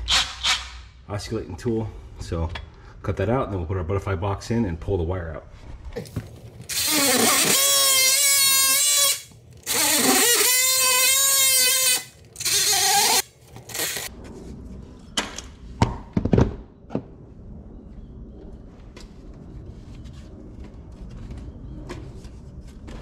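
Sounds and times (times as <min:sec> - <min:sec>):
oscillating multi-tool buzzing: 0:06.7 - 0:14.1.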